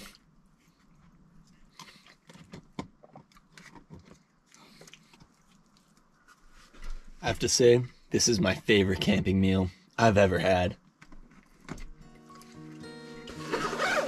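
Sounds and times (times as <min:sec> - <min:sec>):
steak being chewed: 0:00.0 - 0:06.4.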